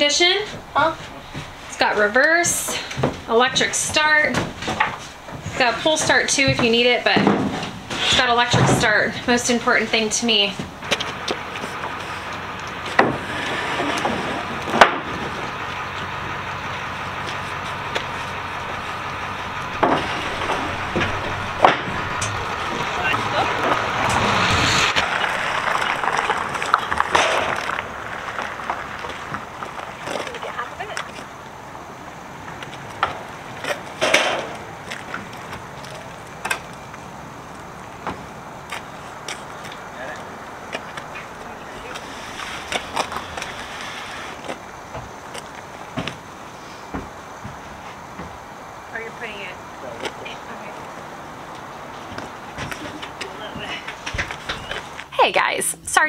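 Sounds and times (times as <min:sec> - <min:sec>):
steady background hum: 0:00.0 - 0:56.0
wooden boards knocking: 0:19.7 - 0:23.2.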